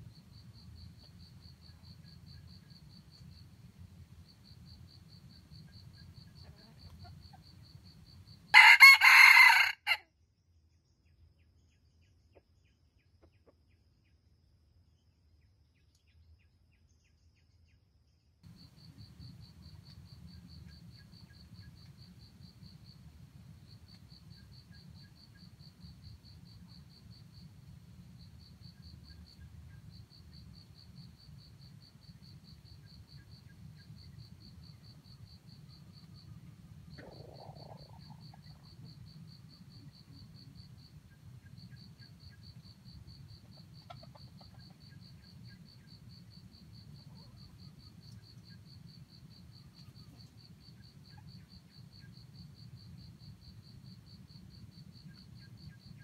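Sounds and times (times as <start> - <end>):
rooster crowing: 8.5 - 10.0
pulsing insect trill: 18.5 - 56.0.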